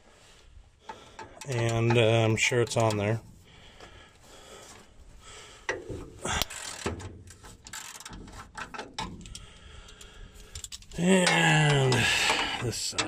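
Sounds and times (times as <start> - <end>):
ratchet wrench clicking: 6.4 - 7.1, 7.7 - 12.7.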